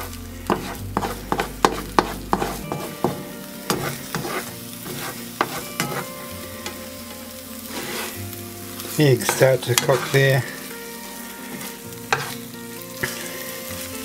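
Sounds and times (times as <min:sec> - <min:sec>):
egg sizzling in oil: 0:00.0 - 0:14.0
plastic spatula scraping a pan: 0:00.4 - 0:06.1, 0:07.7 - 0:08.2, 0:11.5 - 0:12.4.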